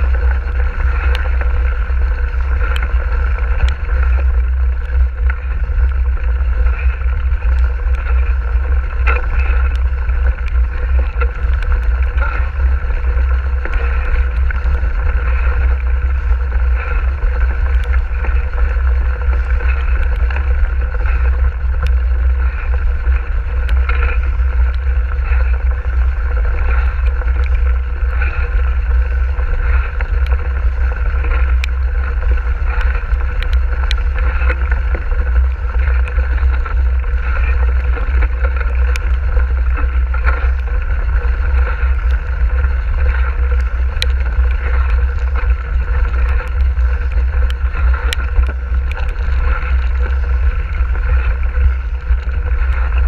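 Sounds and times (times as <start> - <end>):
bike tyres rumbling on gravel: 0.0 - 53.0
constant hum: 0.0 - 53.0
wind on microphone: 0.0 - 53.0.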